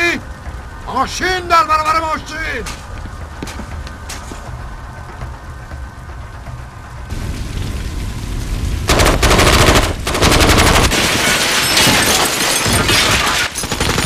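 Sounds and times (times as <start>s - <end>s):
automatic gunfire bursts: 8.9s - 11.0s.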